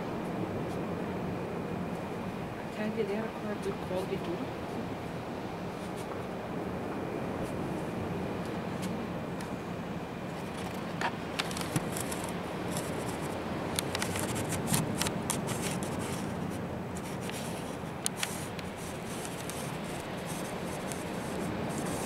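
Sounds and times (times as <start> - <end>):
low outdoor background hum: 0.0 - 22.0
light clicks and ticks: 10.6 - 16.2, 17.0 - 22.0.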